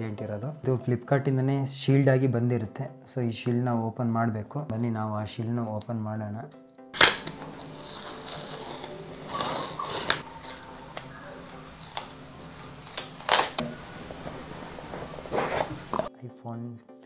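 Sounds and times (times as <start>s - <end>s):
paper and cardboard tearing: 7.0s - 16.1s.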